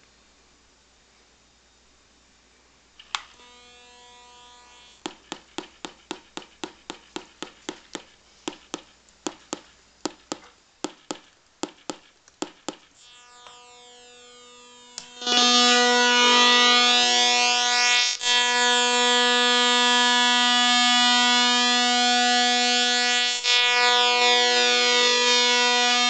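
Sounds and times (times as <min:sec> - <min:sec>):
steady buzzy tone: 0:03.0 - 0:08.1, 0:08.7 - 0:26.0
electronic clicks with buzzy ringing: 0:10.3 - 0:15.9.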